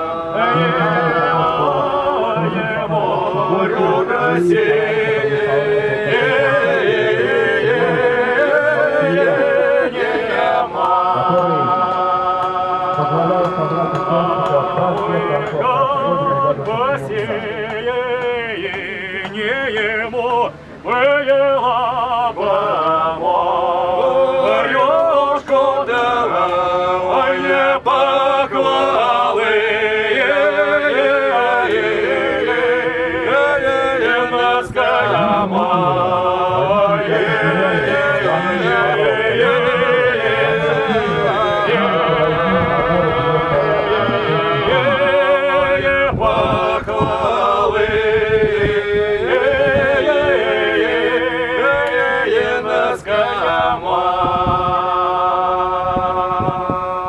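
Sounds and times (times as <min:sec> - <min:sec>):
men singing in harmony: 0:00.0 - 0:57.0.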